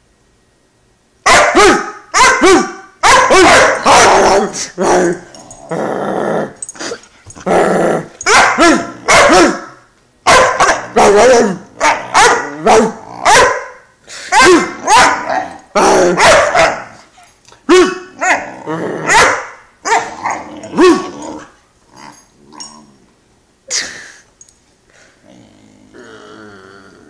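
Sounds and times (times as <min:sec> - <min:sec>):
puppy barking and yipping: 0:01.3 - 0:04.2, 0:08.2 - 0:09.7, 0:10.3 - 0:15.4, 0:16.2 - 0:17.0, 0:19.1 - 0:21.2.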